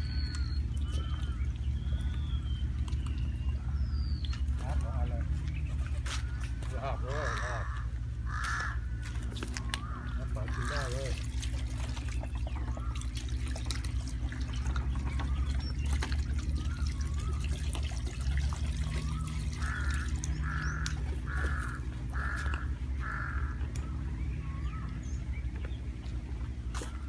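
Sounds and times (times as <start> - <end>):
birds chirping: 0.0 - 27.0
steady low rumble: 0.0 - 27.0
crow cawing: 6.1 - 11.2, 19.5 - 23.7.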